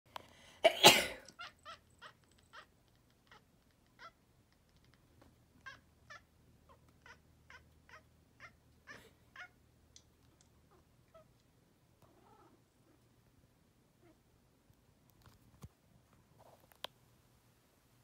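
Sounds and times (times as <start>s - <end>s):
person sneezing: 0.6s - 1.3s
cat meowing: 1.3s - 4.2s, 5.6s - 9.6s.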